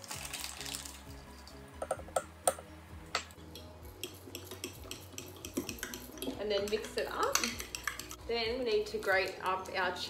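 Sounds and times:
background music: 0:00.0 - 0:10.0
spoon clinking against glass jug: 0:03.2 - 0:08.2.

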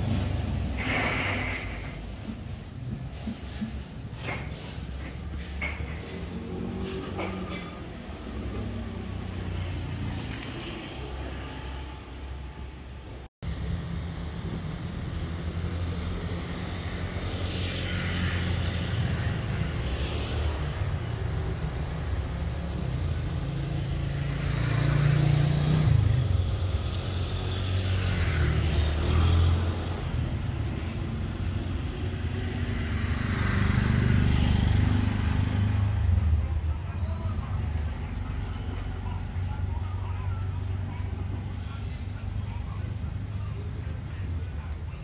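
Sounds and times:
traffic passing: 0:00.0 - 0:45.0.

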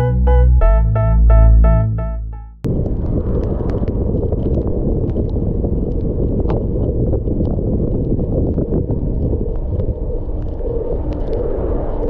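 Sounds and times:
wind rumbling on microphone: 0:02.7 - 0:12.0.

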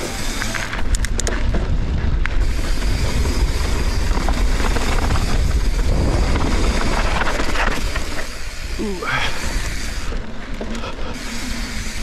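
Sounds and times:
bike tyres rattling on trail: 0:00.0 - 0:12.0
wind buffeting microphone: 0:00.8 - 0:10.2.

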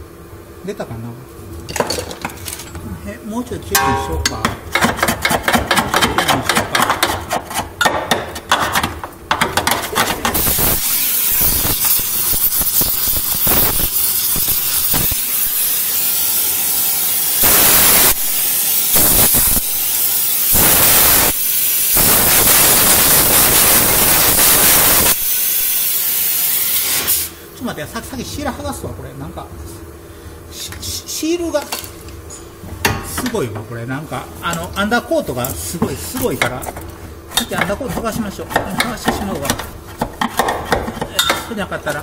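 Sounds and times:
gas torch hissing: 0:10.2 - 0:27.6.

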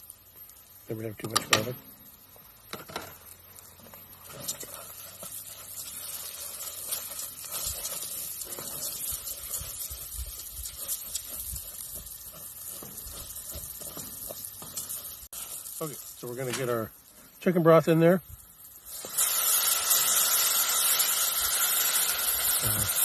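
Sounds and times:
rice sizzling in oil: 0:00.0 - 0:23.0
spatula scraping pot: 0:03.8 - 0:15.7.

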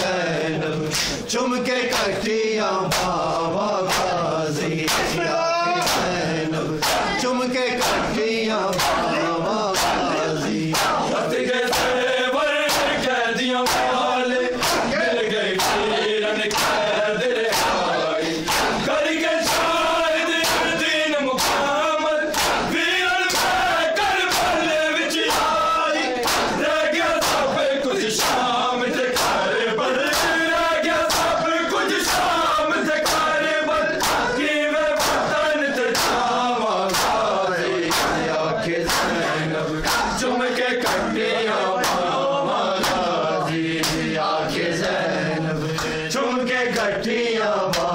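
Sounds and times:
men chanting a lament: 0:00.0 - 0:47.9
hands slapping chests: 0:00.8 - 0:01.2, 0:02.9 - 0:04.2, 0:04.8 - 0:05.2, 0:05.8 - 0:06.2, 0:06.8 - 0:07.2, 0:07.8 - 0:11.1, 0:11.7 - 0:12.0, 0:12.6 - 0:14.0, 0:14.6 - 0:15.0, 0:15.6 - 0:16.9, 0:17.5 - 0:17.8, 0:18.4 - 0:19.8, 0:20.4 - 0:20.8, 0:21.4 - 0:27.5, 0:28.1 - 0:28.5, 0:29.1 - 0:29.4, 0:30.0 - 0:30.4, 0:31.0 - 0:31.4, 0:32.0 - 0:32.4, 0:33.0 - 0:33.4, 0:34.0 - 0:36.3, 0:36.9 - 0:40.2, 0:41.8 - 0:42.1, 0:42.8 - 0:43.1, 0:43.8 - 0:44.1, 0:45.8 - 0:46.0.

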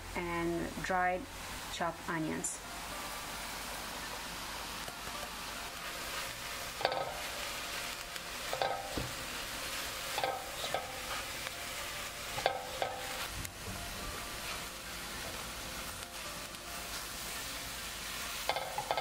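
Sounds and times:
vegetables sizzling in oil: 0:00.0 - 0:19.0
spoon clinking against pot: 0:18.5 - 0:19.0.

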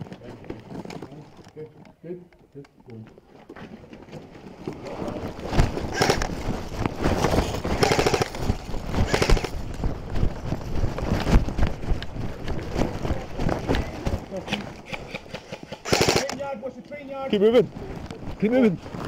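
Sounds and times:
gear and clothing rattling: 0:00.0 - 0:02.0, 0:02.9 - 0:19.0
camera rubbing: 0:05.1 - 0:09.8
heavy footfalls: 0:05.1 - 0:14.8.

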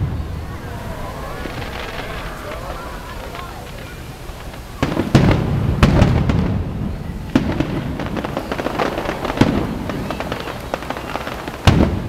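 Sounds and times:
low rumble: 0:00.0 - 0:07.0
fireworks bangs: 0:00.0 - 0:12.0
fireworks crackling and popping: 0:00.0 - 0:12.0.

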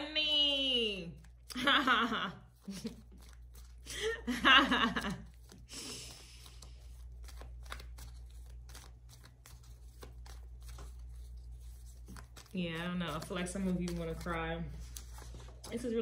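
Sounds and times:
cards rustling and clicking: 0:02.5 - 0:04.0, 0:04.8 - 0:16.0.

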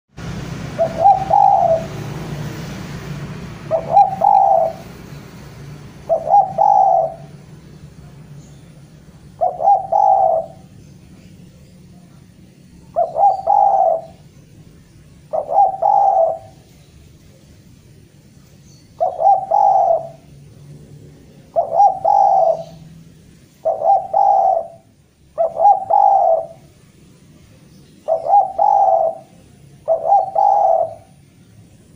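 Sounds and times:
dove cooing: 0:00.6 - 0:02.3, 0:03.6 - 0:05.0, 0:05.8 - 0:07.5, 0:09.2 - 0:11.2, 0:12.8 - 0:14.3, 0:15.1 - 0:16.8, 0:18.9 - 0:20.3, 0:21.2 - 0:26.8, 0:28.0 - 0:31.3.

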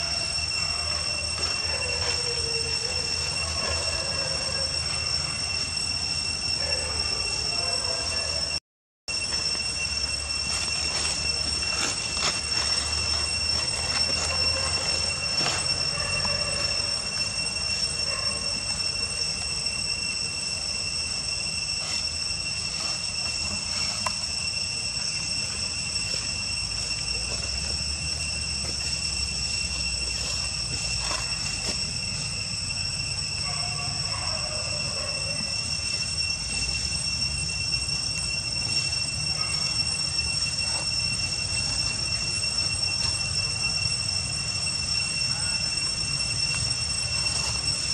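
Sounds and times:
cicadas droning: 0:00.0 - 0:47.9.

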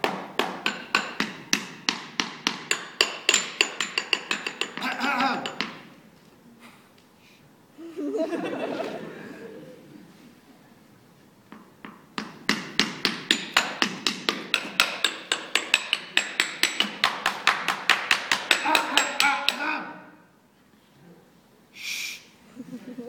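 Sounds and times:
drumsticks striking hard surface: 0:00.0 - 0:05.9, 0:11.5 - 0:19.7.

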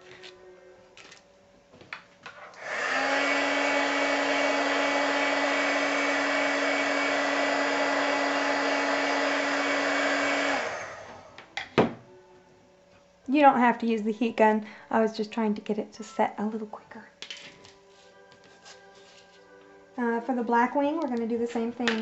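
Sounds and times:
heat gun blowing air: 0:02.6 - 0:11.4.

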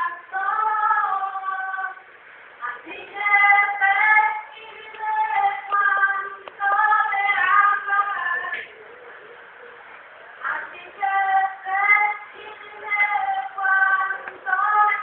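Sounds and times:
woman singing unaccompanied: 0:00.0 - 0:08.9, 0:10.4 - 0:15.0.

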